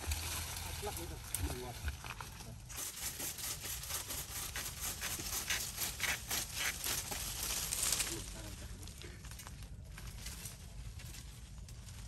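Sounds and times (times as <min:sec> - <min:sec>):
leaves and twigs rustling: 0:00.0 - 0:12.0.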